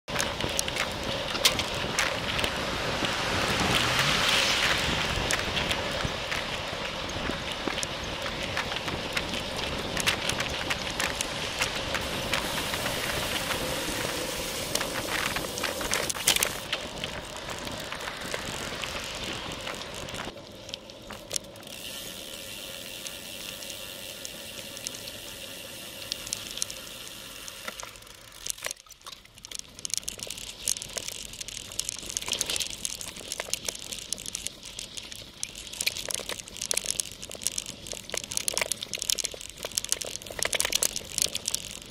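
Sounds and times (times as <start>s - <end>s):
tyre noise on pavement: 0.0s - 41.9s
tyres rattling on dirt trail: 0.0s - 41.9s
wind noise: 0.1s - 20.4s
traffic: 0.1s - 28.8s.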